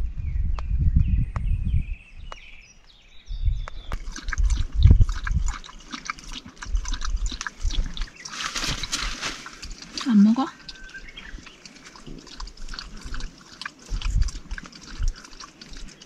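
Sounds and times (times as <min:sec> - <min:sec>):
dog lapping water: 0:03.9 - 0:16.0.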